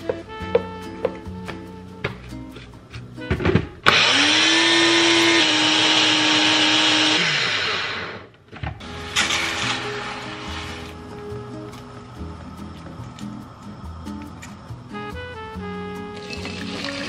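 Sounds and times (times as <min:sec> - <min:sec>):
blender motor whining: 0:03.8 - 0:10.9.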